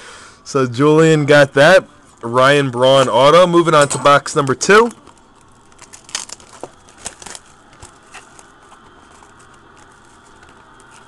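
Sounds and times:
plastic wrap crinkling and tearing: 4.4s - 11.0s.

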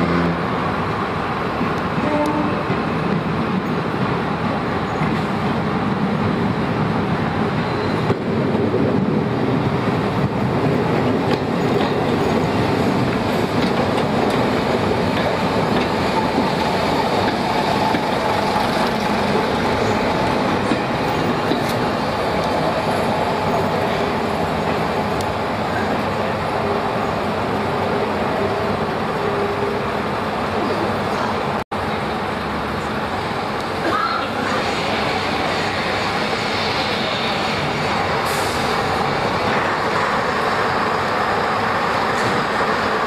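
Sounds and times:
train diesel engine rumble: 0.0s - 43.0s.

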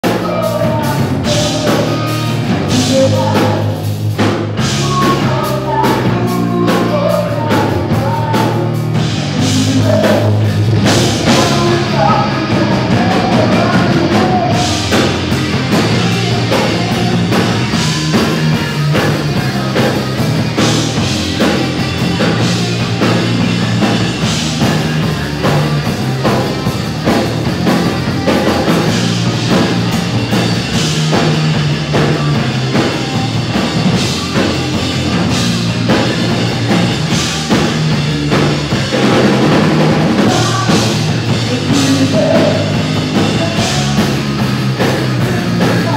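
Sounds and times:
person singing: 0.0s - 4.0s, 4.6s - 23.4s, 40.1s - 45.9s
hard rock band playing: 0.0s - 45.9s.

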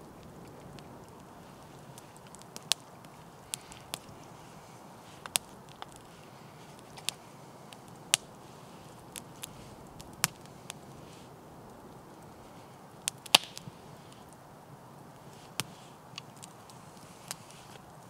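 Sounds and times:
campfire crackling and popping: 0.0s - 18.0s
faint steady hiss: 0.0s - 18.0s.

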